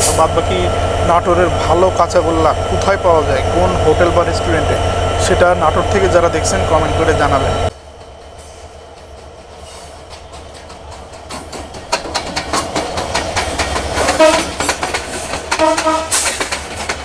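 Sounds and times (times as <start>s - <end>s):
train wheels clicking on rails: 0.0s - 17.0s
train horn blast: 14.1s - 14.6s, 15.5s - 16.3s.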